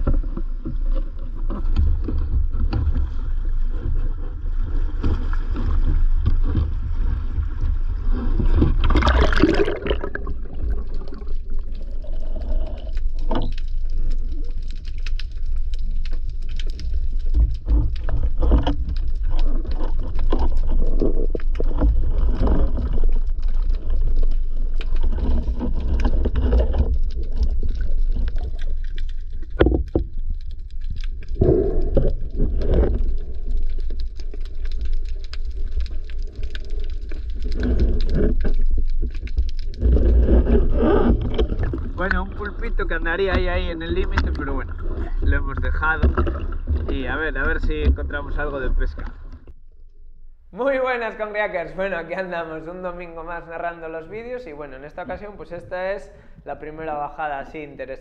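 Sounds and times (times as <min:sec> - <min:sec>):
underwater water movement: 0:00.0 - 0:50.0
rush of noise entering water: 0:08.6 - 0:11.6.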